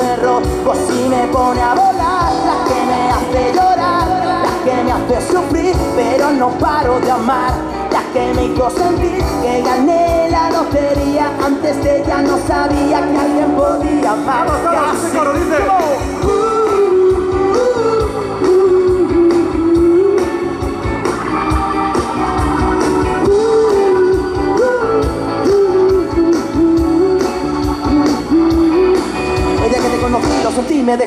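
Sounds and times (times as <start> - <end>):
lead melody: 0.0 - 31.0.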